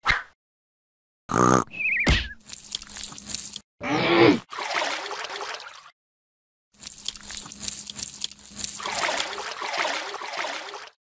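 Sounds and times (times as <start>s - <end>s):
water trickling and splashing: 2.4s - 3.6s, 4.5s - 5.9s, 6.8s - 11.0s.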